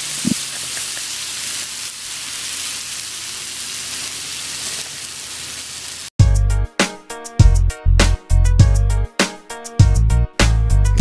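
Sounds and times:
chicken sizzling: 0:00.0 - 0:06.2.

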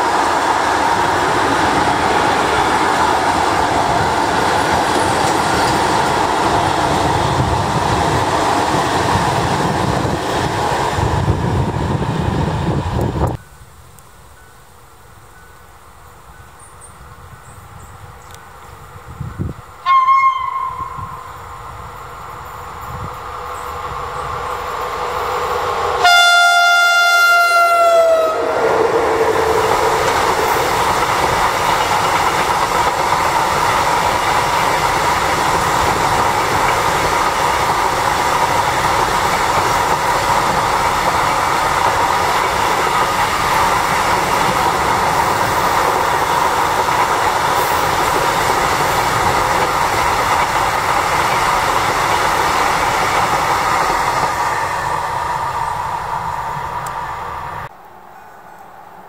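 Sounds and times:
freight train rumbling past: 0:00.0 - 0:13.4, 0:17.0 - 0:59.0
locomotive horn blast: 0:19.8 - 0:21.3, 0:25.9 - 0:29.4.

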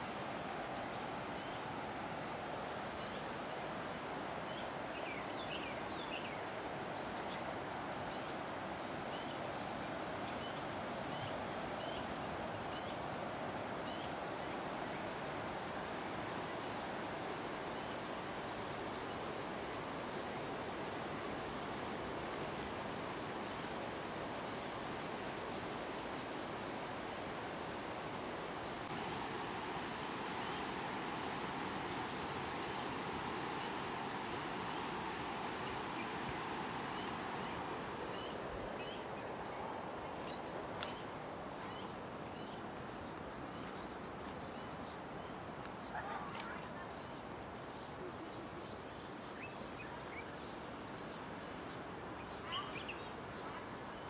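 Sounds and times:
crickets trilling: 0:00.0 - 0:54.0
bird calls: 0:45.8 - 0:50.3.

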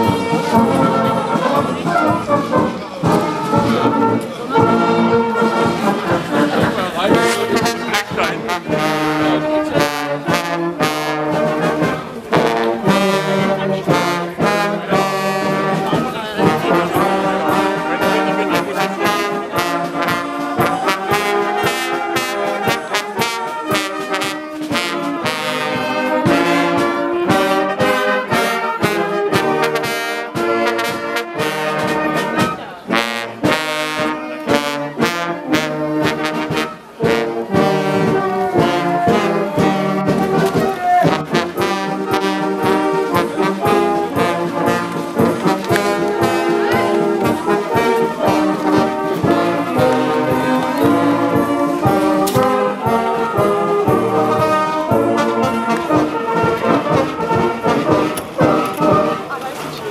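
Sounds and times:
brass band music: 0:00.0 - 0:59.9
voices: 0:00.0 - 0:59.9.

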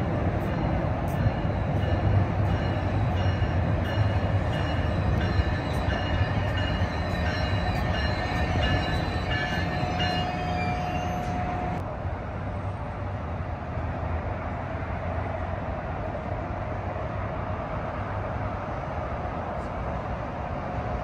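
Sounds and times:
low rumble of train: 0:00.0 - 0:21.0
locomotive bell ringing: 0:00.4 - 0:11.8.

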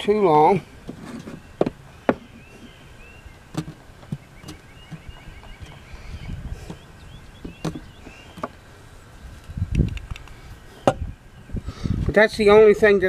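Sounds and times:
birds chirping faintly: 0:00.0 - 0:13.0
sharp clicks from hands: 0:09.7 - 0:10.4.

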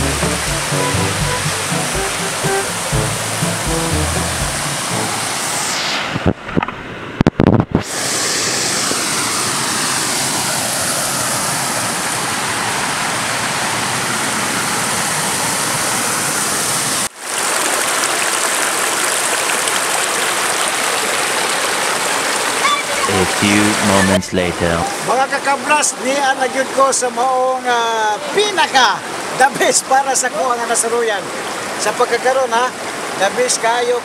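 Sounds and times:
brief thumps: 0:00.0 - 0:05.2
stream rushing over cascades: 0:10.8 - 0:23.1.

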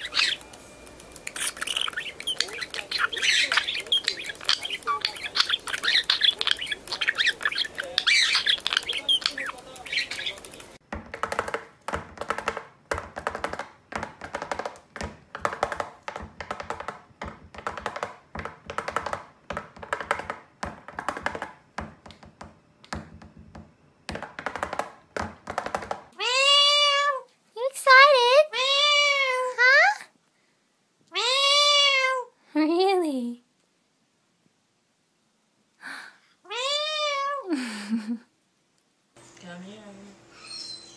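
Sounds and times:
budgerigar chirping: 0:00.0 - 0:00.5, 0:01.3 - 0:10.6, 0:40.4 - 0:40.9.

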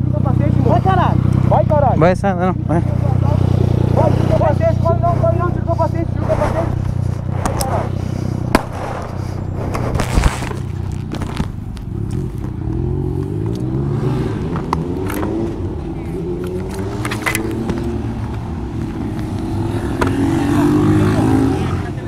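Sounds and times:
engine accelerating: 0:00.0 - 0:22.0
person breathing hard: 0:05.6 - 0:09.8.

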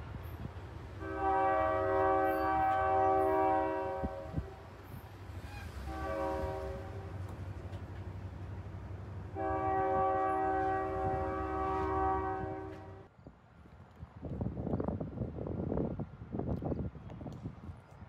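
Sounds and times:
locomotive air horn: 0:01.0 - 0:07.3, 0:09.3 - 0:13.1.

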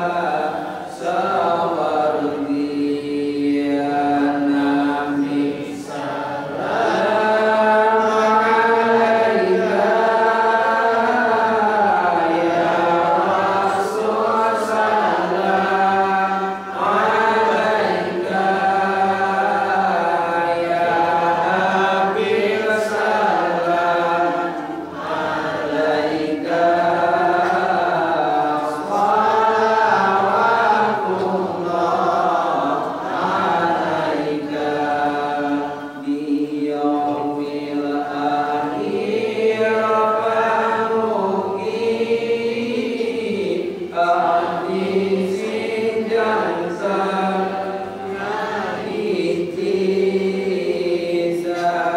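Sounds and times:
man chanting a prayer: 0:00.0 - 0:24.8.

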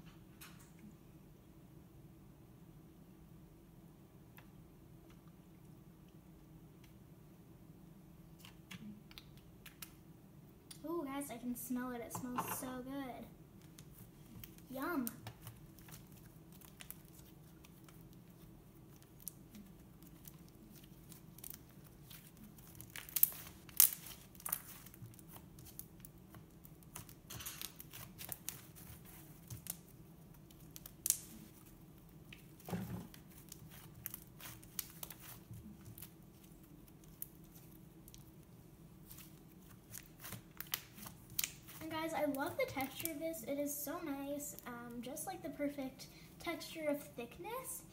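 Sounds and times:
slime crackling and popping: 0:13.6 - 0:43.2.

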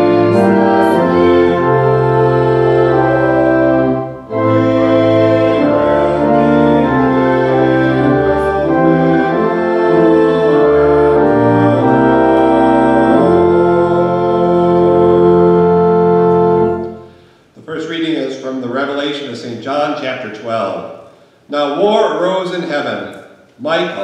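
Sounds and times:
organ playing sustained chords: 0:00.0 - 0:17.9.

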